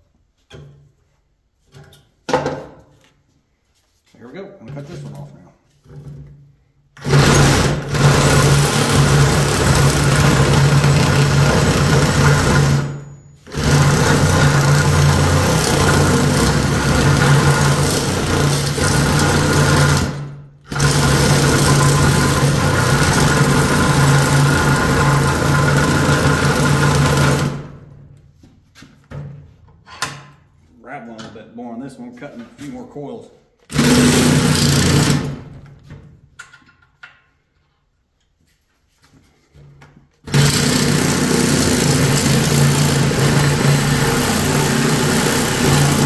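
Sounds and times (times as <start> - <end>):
reciprocating saw cutting metal: 7.0 - 27.5, 40.3 - 46.0.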